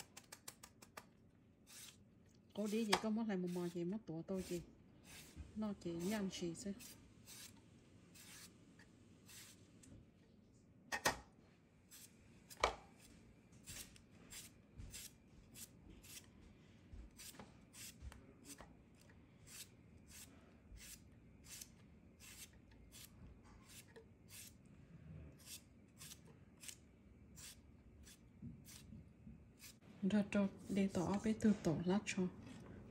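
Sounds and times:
knife slicing cucumber: 2.6 - 8.5, 17.1 - 18.6, 25.4 - 26.8, 27.4 - 28.9.

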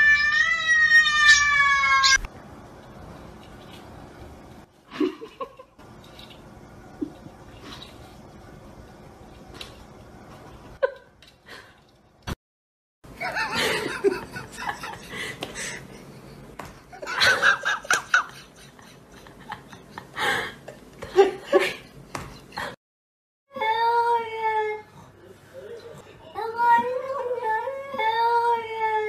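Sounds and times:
people laughing and giggling: 13.2 - 16.1, 16.9 - 22.8.

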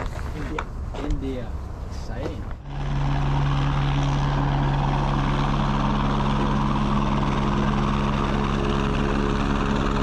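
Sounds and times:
low hum: 1.5 - 10.0
helicopter engine and rotor drone: 2.5 - 10.0.

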